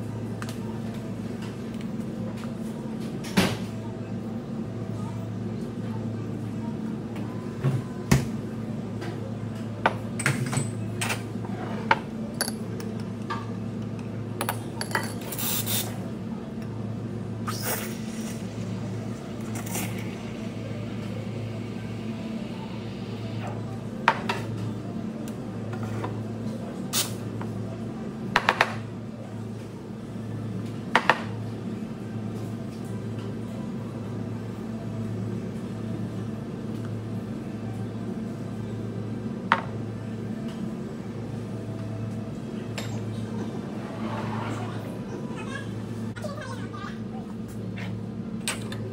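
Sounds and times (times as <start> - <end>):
machine hum: 16.4 - 25.7.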